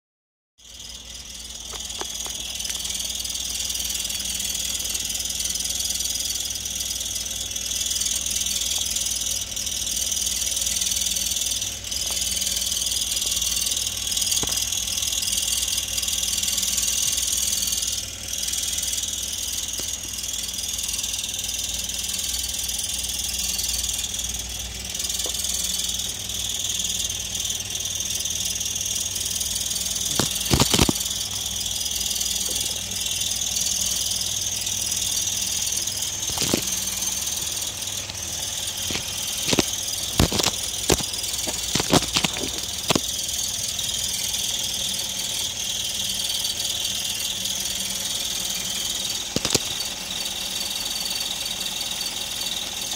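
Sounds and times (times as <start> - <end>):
car engine idling: 0.6 - 52.9.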